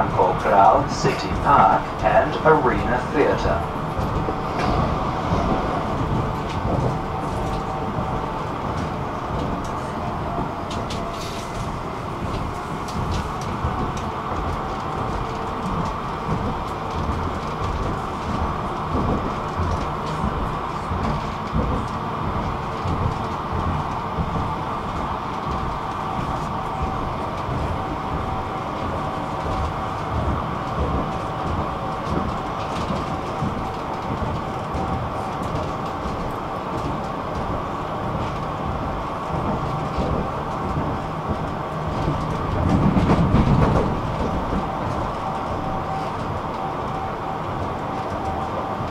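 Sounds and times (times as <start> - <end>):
tram wheels rumbling on rails: 0.0 - 48.9
clicks and knocks from track: 0.1 - 48.9.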